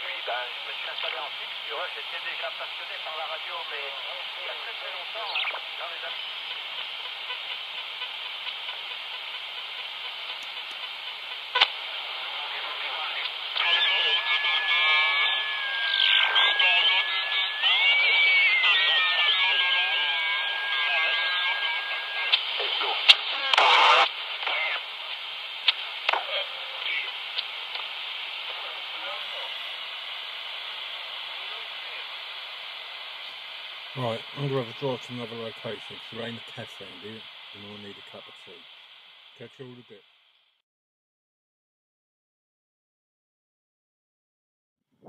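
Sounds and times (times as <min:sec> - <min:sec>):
radio crackle: 0:00.0 - 0:40.4
noise burst: 0:00.0 - 0:40.6
radio static hiss: 0:00.0 - 0:40.6.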